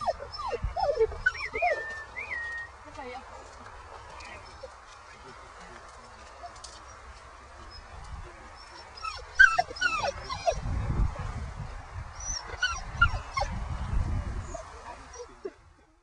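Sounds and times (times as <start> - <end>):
dog whining: 0.0 - 2.7, 8.7 - 10.6, 12.2 - 13.5.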